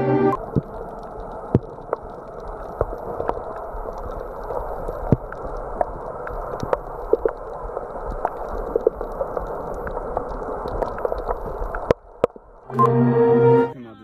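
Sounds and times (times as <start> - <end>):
muffled underwater rush: 0.0 - 13.6
sharp underwater clicks and pops: 0.4 - 12.7.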